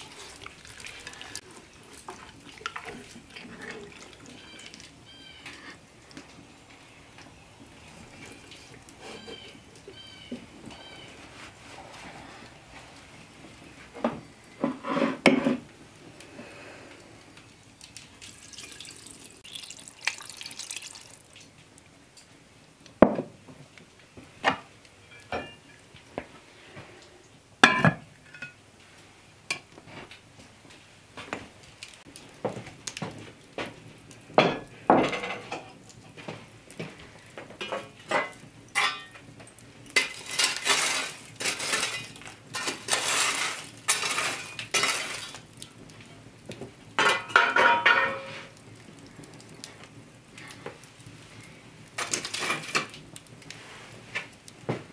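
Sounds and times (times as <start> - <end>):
water splashing into a pot: 0.0 - 5.1, 17.6 - 21.7, 37.6 - 46.2, 46.9 - 49.7, 51.9 - 53.3
iron tool scraping coals: 0.0 - 6.1, 7.9 - 12.4, 14.6 - 15.7, 39.9 - 45.6, 52.0 - 53.9
cast iron pot and lid clanking: 24.5 - 25.8, 27.6 - 28.6, 34.4 - 35.8, 37.6 - 39.2, 39.9 - 45.4, 47.0 - 48.6.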